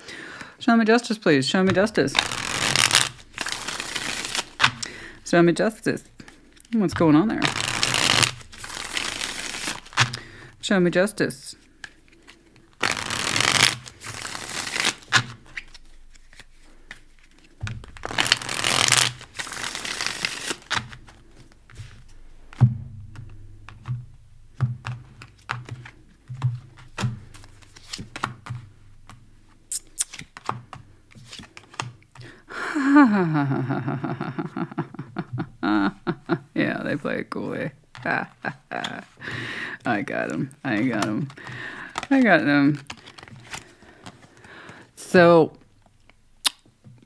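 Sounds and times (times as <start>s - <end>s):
cards riffle-shuffled: 1.7s - 4.9s, 6.0s - 10.4s, 11.6s - 22.2s, 24.6s - 32.3s, 40.3s - 44.8s
cards tapping on table: 21.7s - 29.2s.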